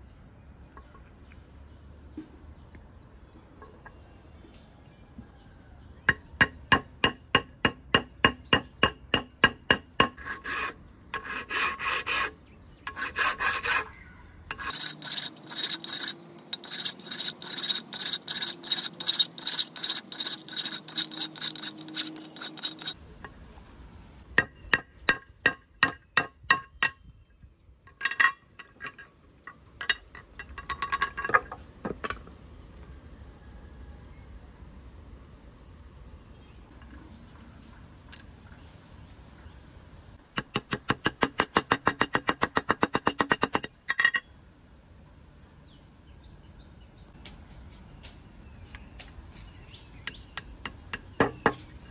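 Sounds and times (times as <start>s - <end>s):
hand file rasping: 10.0s - 23.0s.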